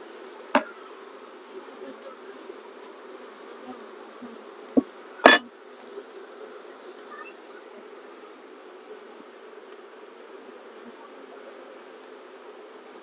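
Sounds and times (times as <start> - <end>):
bees buzzing: 0.0 - 13.0
hive tool knocking on wood: 0.6 - 0.8, 4.7 - 5.5.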